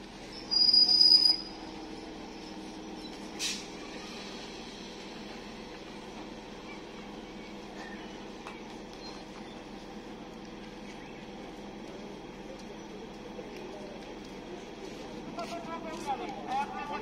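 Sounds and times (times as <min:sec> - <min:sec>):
standing train humming: 0:00.0 - 0:17.0
train brakes squealing: 0:00.2 - 0:05.2
short air hiss: 0:03.4 - 0:03.7.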